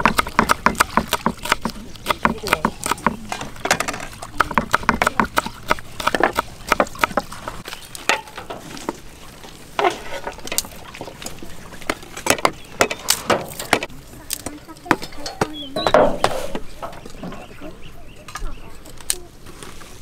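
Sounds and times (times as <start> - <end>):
voices: 1.6 - 6.4, 10.9 - 19.6.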